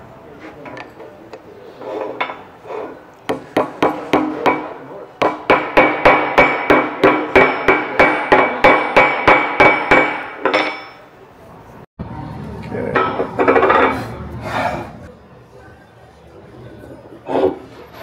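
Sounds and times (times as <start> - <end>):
hammer tapping on metal: 3.3 - 11.0.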